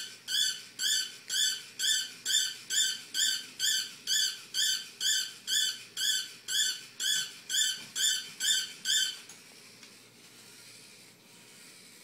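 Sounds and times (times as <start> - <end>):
toy robot dog electronic chirp: 0.3 - 9.2.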